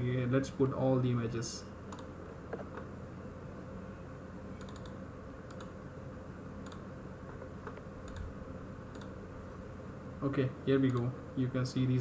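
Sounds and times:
steady low hum: 0.0 - 12.0
computer keys and mouse clicks: 1.9 - 2.8, 4.6 - 5.8, 6.6 - 6.8, 7.6 - 8.3, 8.9 - 9.2, 10.8 - 11.1.

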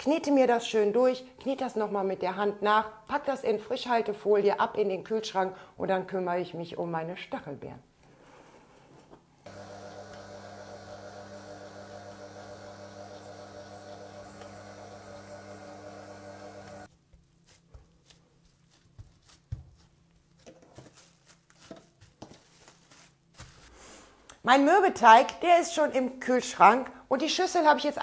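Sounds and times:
stand mixer motor humming: 9.5 - 16.9.

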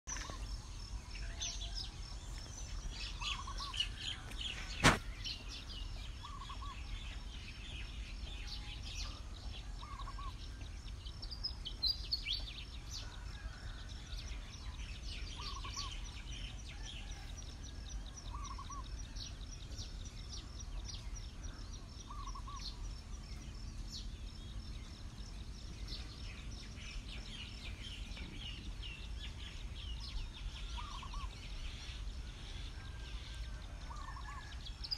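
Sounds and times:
small birds chirping and twittering: 0.0 - 34.9
steady low rumble: 14.4 - 34.8.

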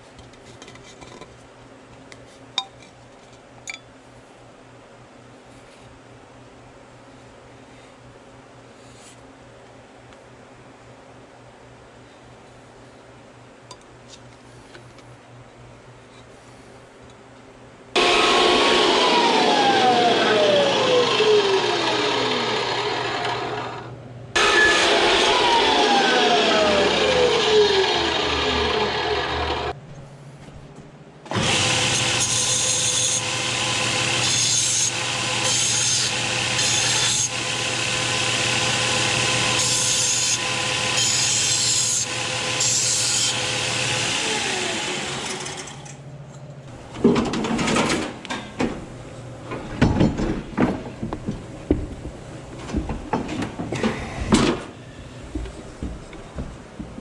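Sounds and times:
chop saw cutting metal pipe: 18.0 - 23.5, 24.4 - 29.7, 31.3 - 45.9
belt sander grinding metal: 18.0 - 23.7, 24.4 - 29.7
motor winding down whine: 18.0 - 29.7.

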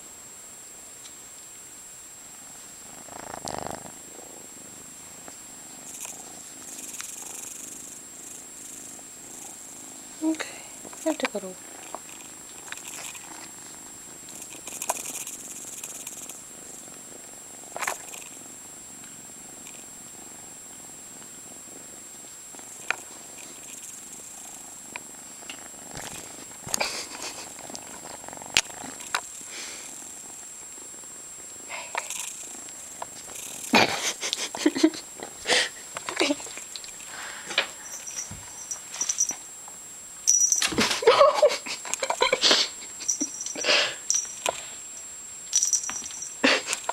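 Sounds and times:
kitten purring: 2.2 - 39.4
handling clicks and rustles: 45.5 - 46.9.

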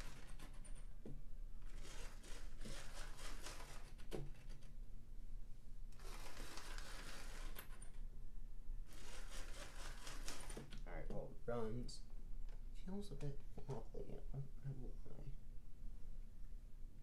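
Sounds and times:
small electric motor whirring: 1.7 - 3.9, 6.0 - 7.6, 8.9 - 10.6.

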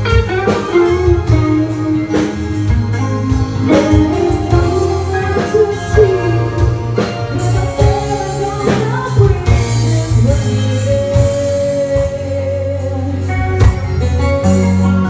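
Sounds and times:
drums: 0.0 - 15.0
electric guitar: 0.0 - 15.0
keyboard: 0.0 - 15.0
woman singing: 3.2 - 13.9.

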